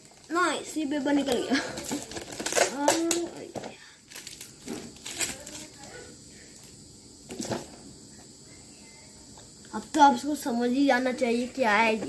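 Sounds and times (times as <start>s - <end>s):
wrapping paper crinkling: 0.0s - 3.3s, 4.1s - 5.9s
tape ripping: 1.2s - 3.4s, 4.1s - 5.8s.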